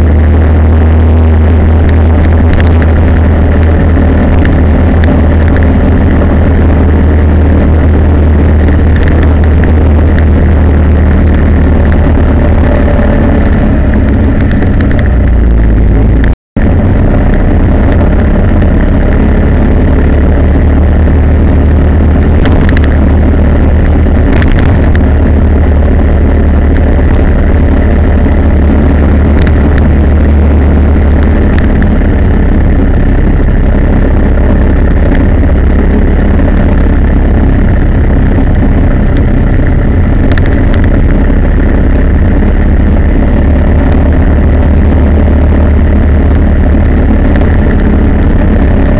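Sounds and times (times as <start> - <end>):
vehicle engine and road rumble: 0.0 - 48.9.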